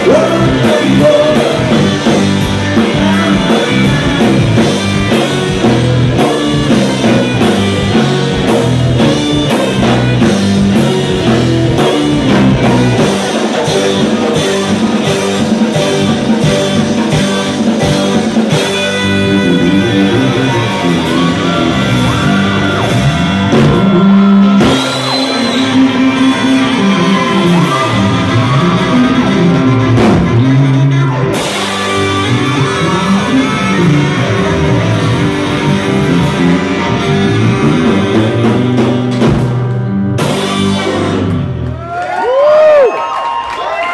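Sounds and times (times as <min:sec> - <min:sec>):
person singing: 0:00.0 - 0:05.3
saxophone: 0:00.0 - 0:39.3
drums: 0:00.0 - 0:43.9
electric guitar: 0:00.0 - 0:43.9.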